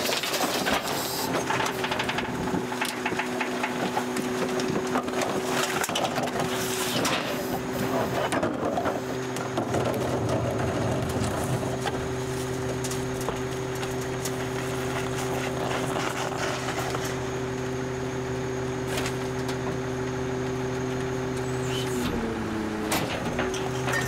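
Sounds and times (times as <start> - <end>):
trash and metal knocks: 0.0 - 7.4, 22.2 - 24.0
garbage truck engine and packer hum: 0.0 - 24.0.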